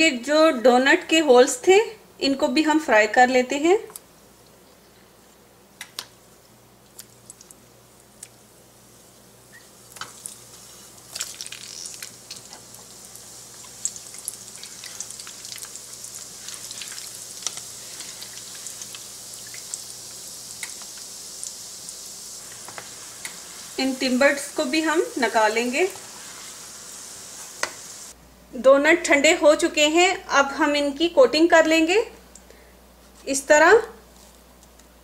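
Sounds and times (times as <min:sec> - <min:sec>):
dough sizzling in hot oil: 0:07.1 - 0:28.2.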